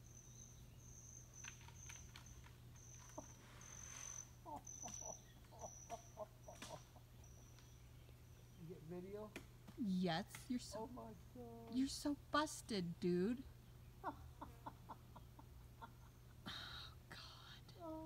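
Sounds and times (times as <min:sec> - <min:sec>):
short squeaks: 0:01.4 - 0:05.2.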